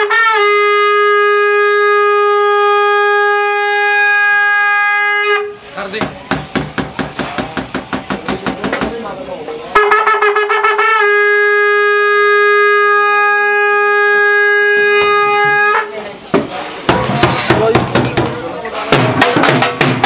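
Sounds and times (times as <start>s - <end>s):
horn blowing long note: 0.0s - 5.7s, 9.8s - 15.9s
large drums beaten fast: 16.4s - 20.0s.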